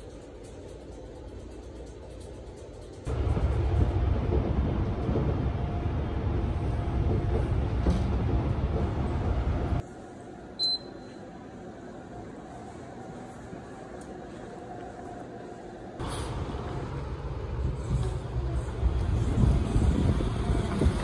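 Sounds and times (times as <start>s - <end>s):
train rumble inside carriage: 0.0s - 10.2s, 11.6s - 21.0s
card reader beep: 10.6s - 11.2s.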